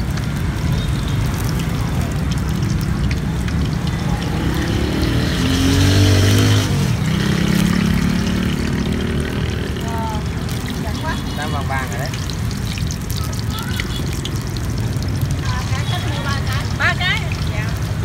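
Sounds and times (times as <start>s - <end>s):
oil sizzling in a wok: 0.0s - 18.0s
street traffic rumbling: 0.0s - 18.0s
vehicle engine passing close: 1.6s - 12.4s.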